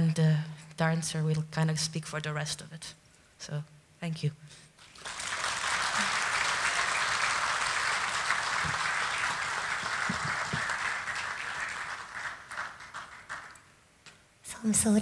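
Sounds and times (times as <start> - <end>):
audience applauding: 4.8 - 13.8.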